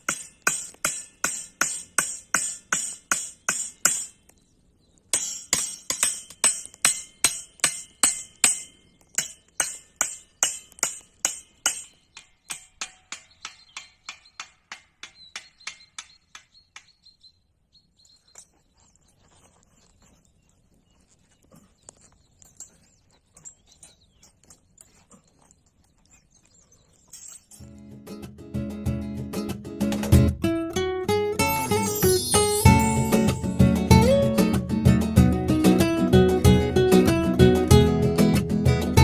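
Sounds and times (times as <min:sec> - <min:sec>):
sharp metallic knocks: 0:00.0 - 0:04.2, 0:05.1 - 0:17.1, 0:31.4 - 0:39.0.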